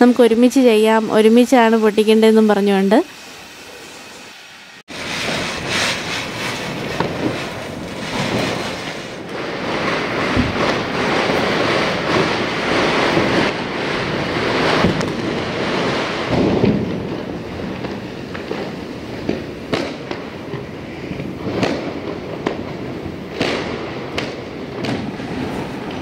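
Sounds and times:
firecrackers crackling and banging: 2.9 - 26.0.

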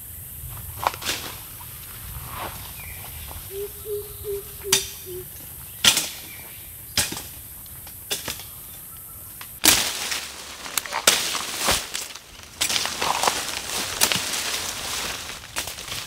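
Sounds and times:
rustling leaves and branches: 0.0 - 16.0
twigs snapping underfoot: 5.8 - 16.0.

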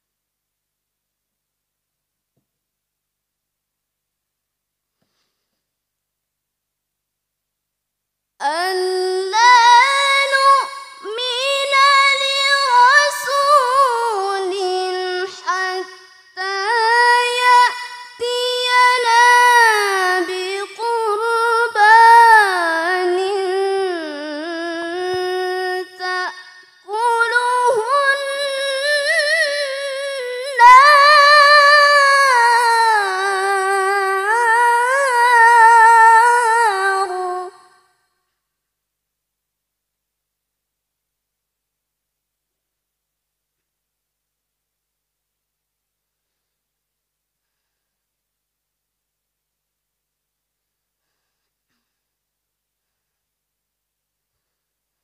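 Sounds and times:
woman reciting melodically: 8.4 - 37.8.

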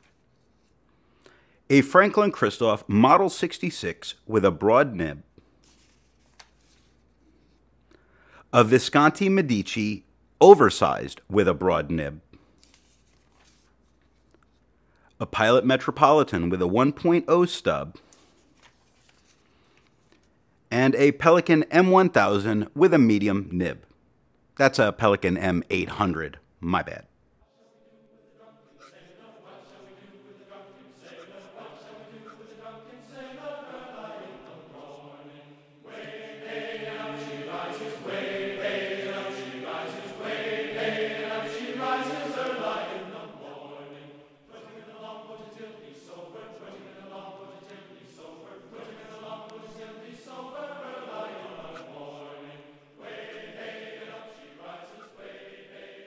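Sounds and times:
choir-like background music: 27.5 - 56.0.

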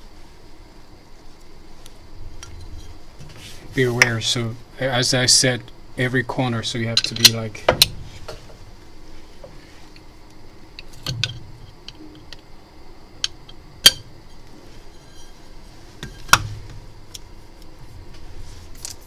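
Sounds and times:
metal plates clicking and knocking: 10.8 - 12.4, 13.2 - 14.1.

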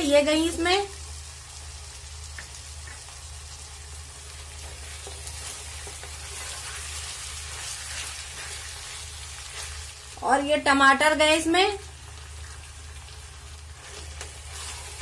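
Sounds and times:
chicken and onions sizzling: 0.0 - 15.0
spatula scraping pot: 13.8 - 15.0.

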